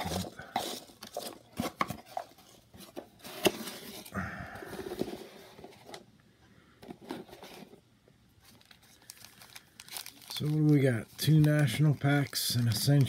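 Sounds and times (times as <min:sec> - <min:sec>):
foil packs rustling: 0:08.4 - 0:13.0.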